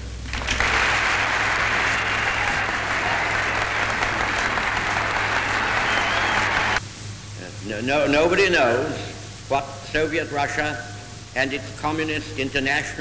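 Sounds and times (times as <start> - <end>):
audience applauding: 0.3 - 6.8.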